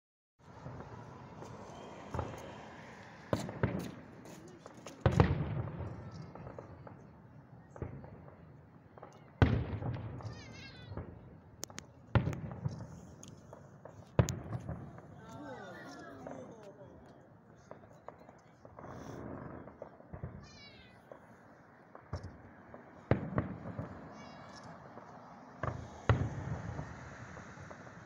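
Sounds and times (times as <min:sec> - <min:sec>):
firework booms: 0:00.5 - 0:02.6, 0:03.3 - 0:04.3, 0:04.9 - 0:16.4, 0:17.5 - 0:28.0
firework pops and crackles: 0:00.5 - 0:28.0.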